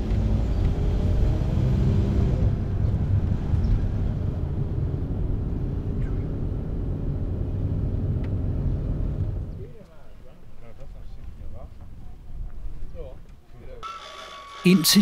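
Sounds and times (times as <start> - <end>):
vehicle engine and road noise: 0.0 - 9.8.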